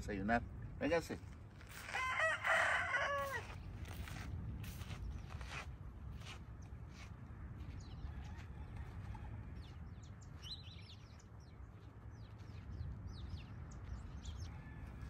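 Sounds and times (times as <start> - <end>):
steady low rumble: 0.0 - 15.0
small birds chirping: 9.6 - 14.8.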